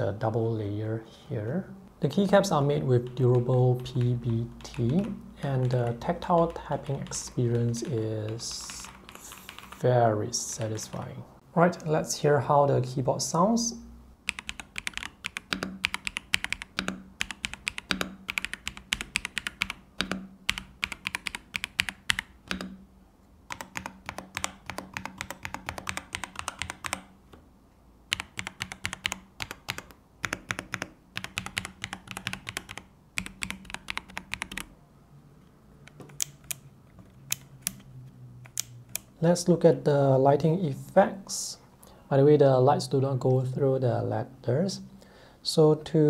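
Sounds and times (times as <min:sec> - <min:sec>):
mechanical keyboard typing: 0:02.9 - 0:10.0, 0:14.2 - 0:22.8, 0:23.5 - 0:27.1, 0:28.1 - 0:34.7, 0:35.8 - 0:39.1.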